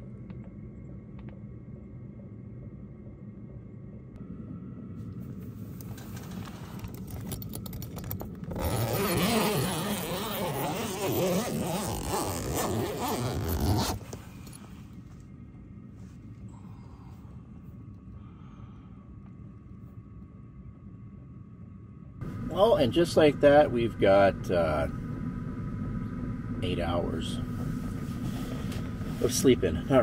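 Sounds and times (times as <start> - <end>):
low steady hum: 0.0 - 30.0
tent zipper being unzipped: 8.5 - 14.4.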